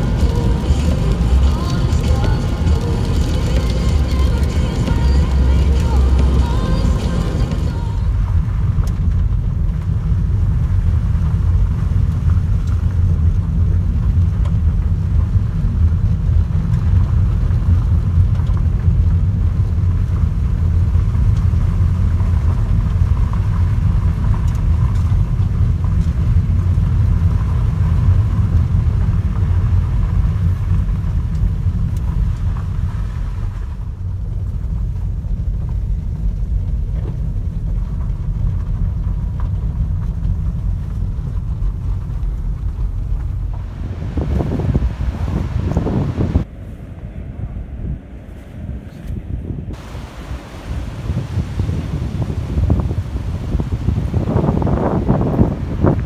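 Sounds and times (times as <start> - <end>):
road hiss: 0.0 - 8.3, 43.6 - 47.0, 47.8 - 56.0
tyre rumble on gravel road: 0.0 - 46.6, 49.7 - 56.0.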